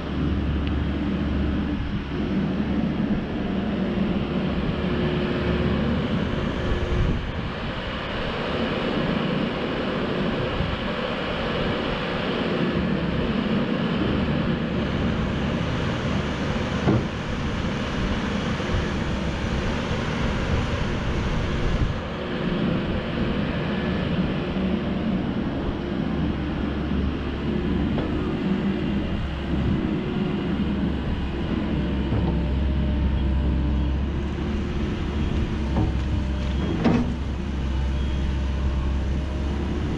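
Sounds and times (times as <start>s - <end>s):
excavator diesel engine running: 0.0s - 39.9s
hydraulics working: 11.4s - 39.9s.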